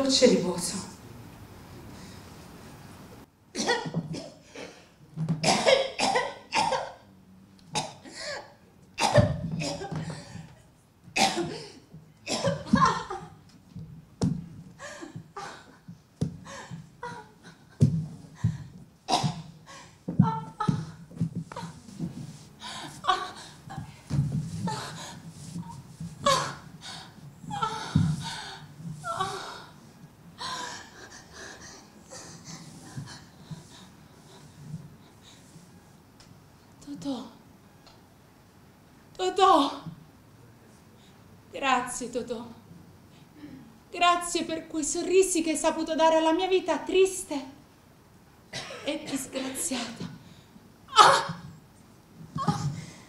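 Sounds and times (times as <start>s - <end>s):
woman coughing and choking: 3.5s - 4.8s, 5.4s - 7.0s, 9.0s - 10.1s, 11.2s - 13.3s, 19.1s - 19.5s, 48.5s - 50.1s, 50.9s - 51.5s
woman gasping and groaning: 16.4s - 17.7s, 24.6s - 29.8s, 30.4s - 33.9s.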